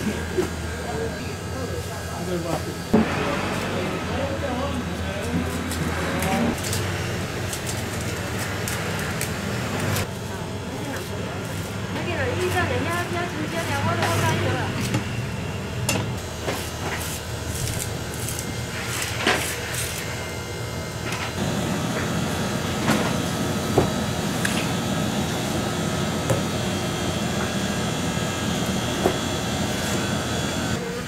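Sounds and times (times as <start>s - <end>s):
knife scraping fish skin: 16.5s - 20.1s.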